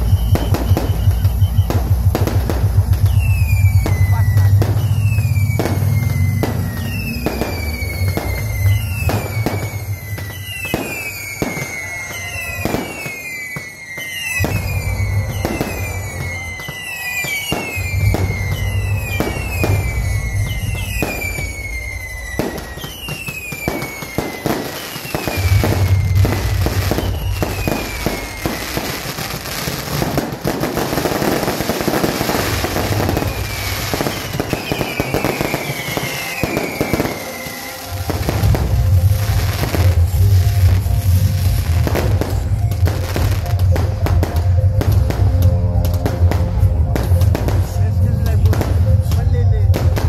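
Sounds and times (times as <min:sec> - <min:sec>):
fireworks crackling bangs: 0:00.0 - 0:50.0
whistling firework shells: 0:00.0 - 0:50.0.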